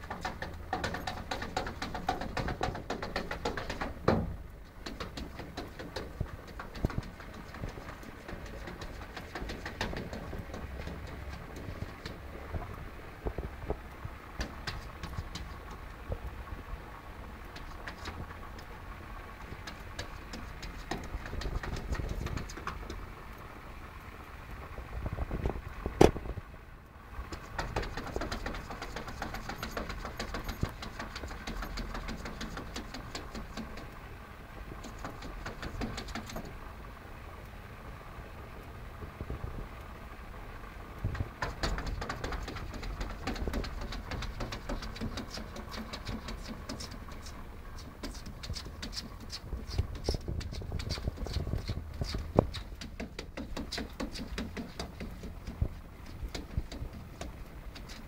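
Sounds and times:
steady low rumble: 6.0s - 27.6s
claws scraping on glass: 41.4s - 58.0s.

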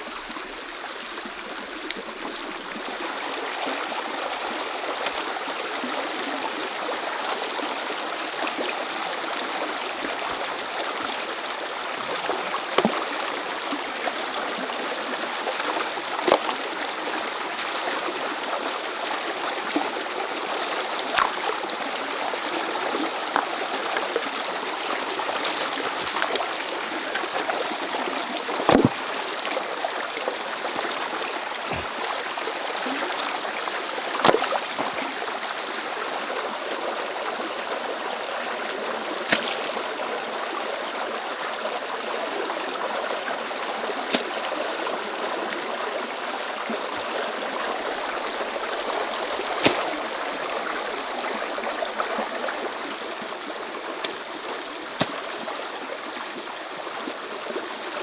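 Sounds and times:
stream running over stones: 0.0s - 58.0s
rocks knocking and splashing: 12.8s - 13.1s, 21.1s - 21.5s, 23.3s - 23.6s, 25.4s - 26.5s, 28.6s - 29.2s, 31.6s - 32.0s, 34.2s - 35.0s, 39.3s - 39.8s, 49.5s - 50.0s.

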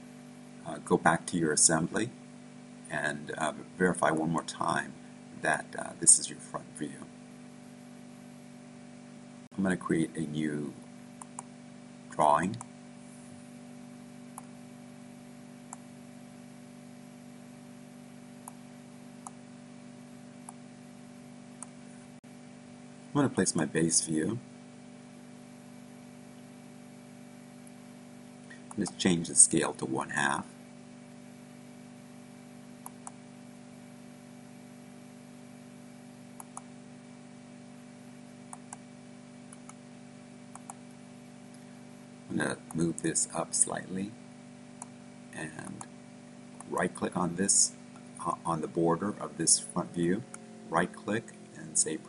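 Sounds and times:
low electrical hum: 0.0s - 52.0s
computer mouse clicks: 11.2s - 11.5s, 36.4s - 36.7s, 39.5s - 39.8s, 40.5s - 40.8s.

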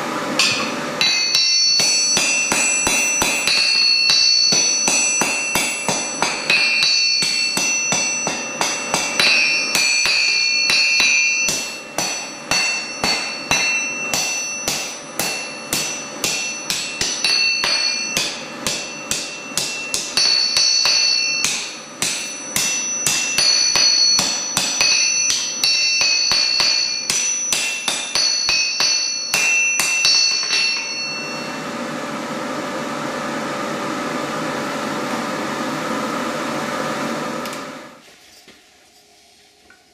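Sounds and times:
steady mechanical hum: 0.0s - 39.9s
hammer striking iron on anvil: 0.4s - 31.6s.

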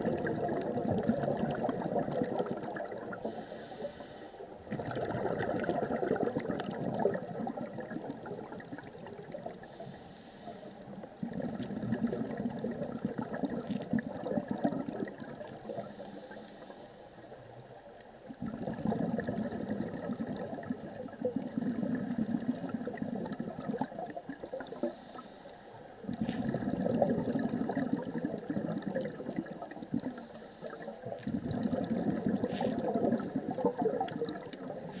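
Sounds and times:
exhaled bubbles rushing: 0.0s - 3.4s, 4.6s - 9.7s, 10.9s - 15.9s, 18.3s - 24.9s, 26.0s - 35.0s
regulator inhale hiss: 3.2s - 4.6s, 9.6s - 11.1s, 15.6s - 17.6s, 24.6s - 26.4s, 30.0s - 31.3s.

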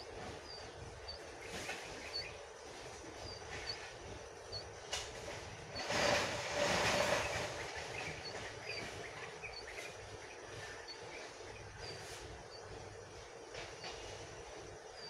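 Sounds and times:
rushing noise with low tone: 0.0s - 15.0s
small birds chirping: 0.0s - 15.0s.

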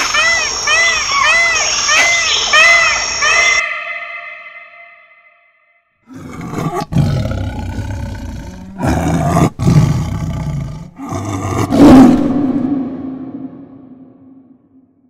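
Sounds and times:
tiger roaring: 6.1s - 13.1s
low hum: 11.7s - 15.0s.

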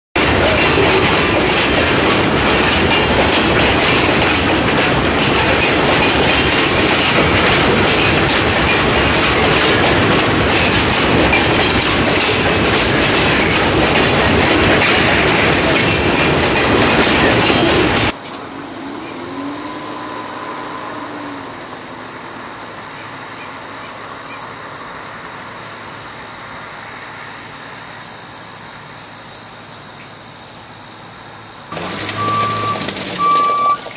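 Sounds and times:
train wheels rumbling on rails: 0.2s - 33.9s
insects chirping: 18.1s - 33.9s.

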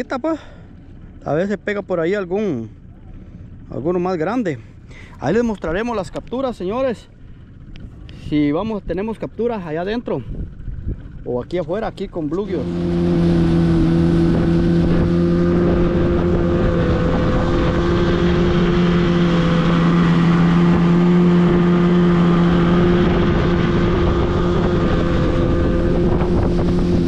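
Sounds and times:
outboard motor running: 0.0s - 27.0s
wind on microphone: 10.2s - 11.4s, 12.6s - 27.0s
water rushing past hull: 10.4s - 27.0s.

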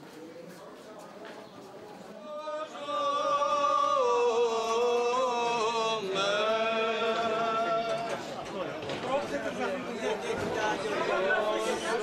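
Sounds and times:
men singing chant: 2.2s - 8.3s.

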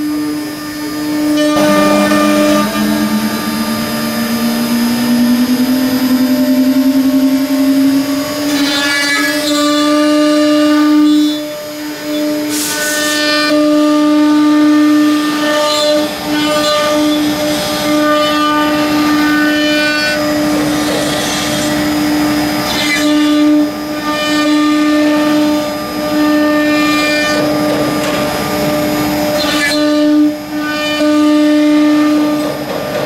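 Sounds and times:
router spindles whining: 0.1s - 13.0s.

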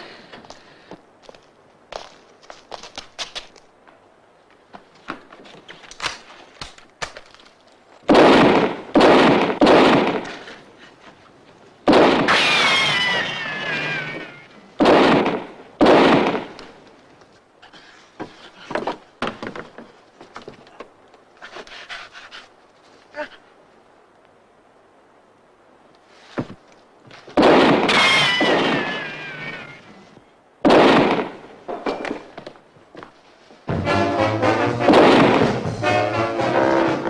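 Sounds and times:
gunshots with echoing tails: 8.1s - 10.3s, 11.9s - 12.4s, 14.8s - 16.6s, 27.4s - 28.8s, 30.6s - 31.4s, 34.8s - 35.8s
faint knocks and clatter: 18.1s - 21.3s.

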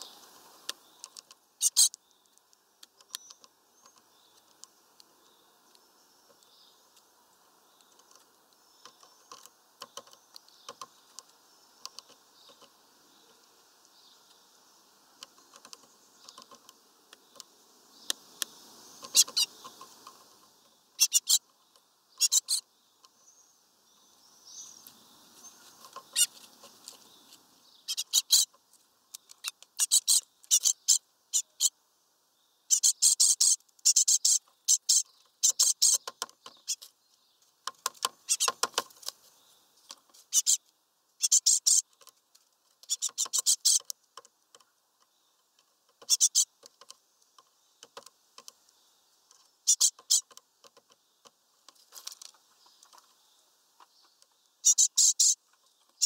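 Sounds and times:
bird pecking wooden perch: 0.2s - 7.1s, 7.8s - 13.5s, 15.1s - 21.3s, 25.6s - 27.1s, 37.6s - 39.2s, 41.6s - 53.2s.

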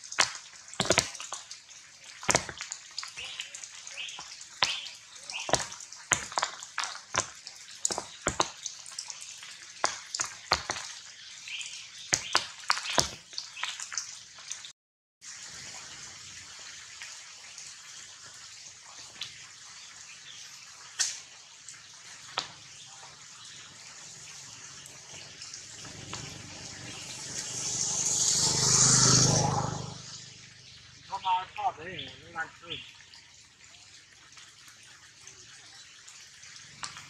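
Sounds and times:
loud single raindrops: 0.0s - 1.6s, 2.2s - 9.2s, 9.8s - 14.6s, 20.9s - 21.4s
rain pattering on leaves: 0.0s - 37.0s.

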